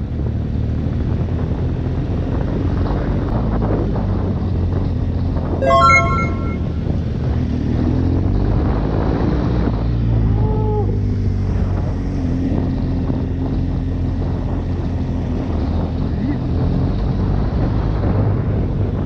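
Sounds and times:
short rising and falling sound: 5.6s - 6.9s.

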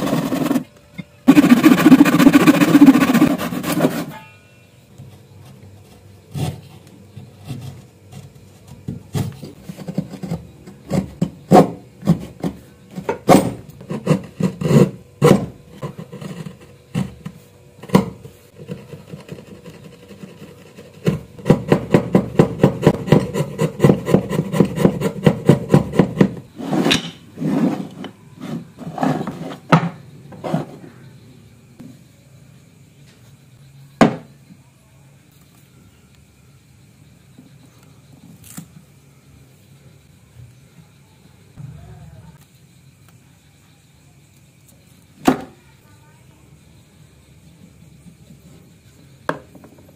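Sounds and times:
quick back-and-forth strokes: 1.3s - 4.2s
chisel knocking on wood: 21.0s - 26.4s.

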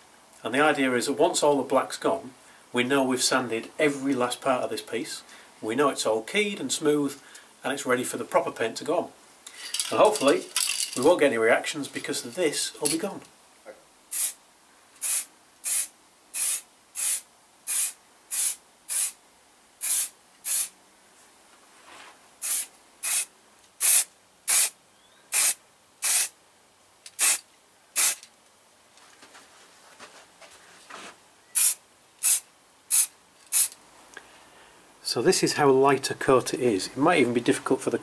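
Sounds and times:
spray paint can hissing: 14.1s - 14.4s, 15.0s - 19.2s, 19.8s - 20.7s, 22.4s - 26.3s, 27.1s - 27.4s, 28.0s - 28.3s, 31.6s - 33.8s.

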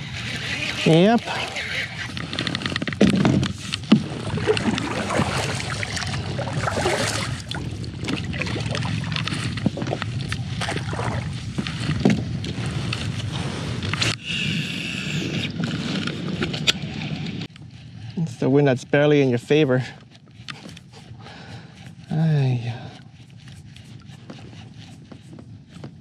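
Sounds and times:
paddle splashing through water: 0.3s - 13.8s.

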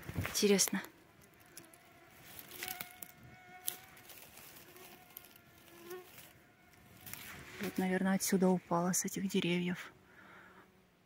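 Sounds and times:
flying insect buzzing: 0.2s - 8.3s.

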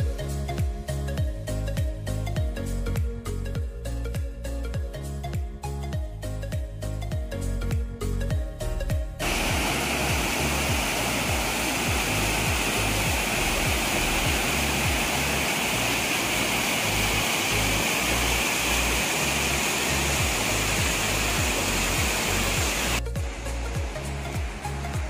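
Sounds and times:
background music with bass: 0.0s - 25.0s
waterfall rushing over rock: 9.2s - 25.0s.

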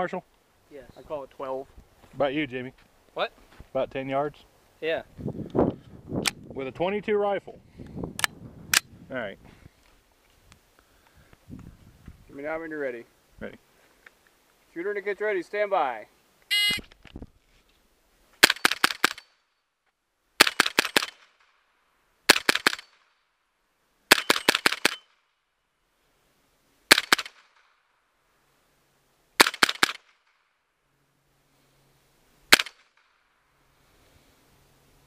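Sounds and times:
rifle shots: 18.4s - 19.3s, 20.4s - 21.5s, 22.3s - 23.0s, 24.1s - 25.1s, 26.9s - 27.7s, 29.4s - 30.4s, 32.5s - 33.1s.

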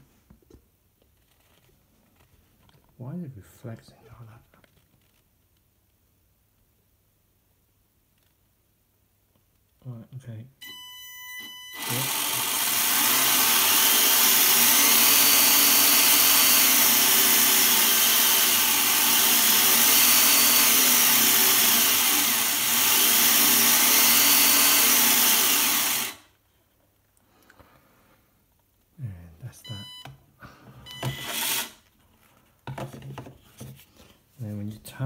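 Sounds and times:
short electronic beep: 10.6s - 11.8s, 29.6s - 30.2s
toy car motor whirring: 11.7s - 26.3s, 30.9s - 31.8s.

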